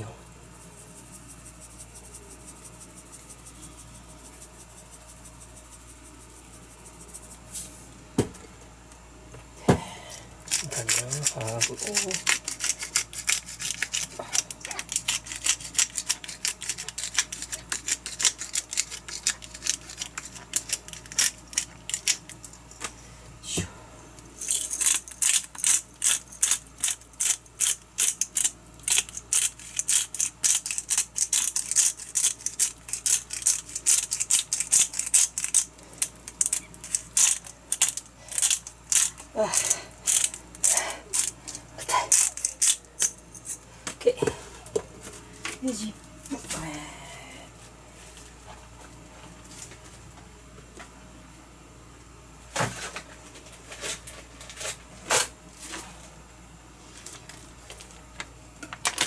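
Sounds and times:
spice bottle rattling: 10.5s - 22.6s, 24.4s - 43.6s.

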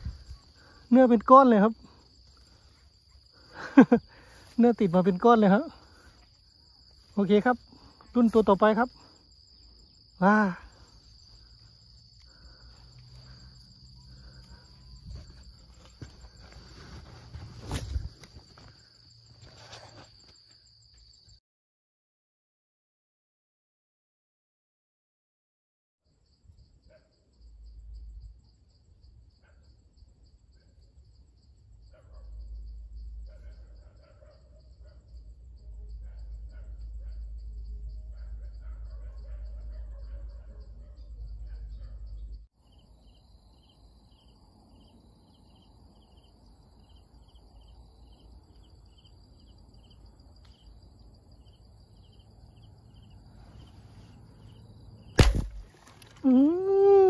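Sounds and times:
insects chirping chorus: 0.0s - 21.4s, 26.0s - 57.0s
speargun shot snap: 55.2s - 56.1s.

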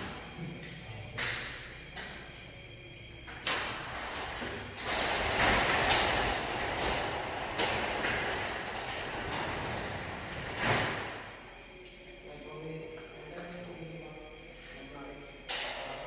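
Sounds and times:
metal gate clanks: 4.8s - 11.2s
folding gate rattling in track: 4.9s - 11.1s.

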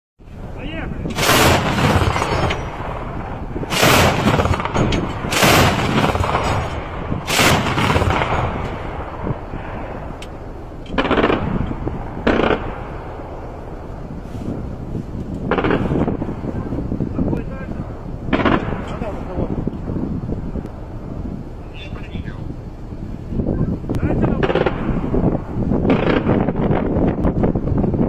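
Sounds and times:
automatic gun firing bursts: 1.2s - 2.8s, 3.7s - 8.6s, 11.0s - 11.5s, 12.3s - 12.7s.

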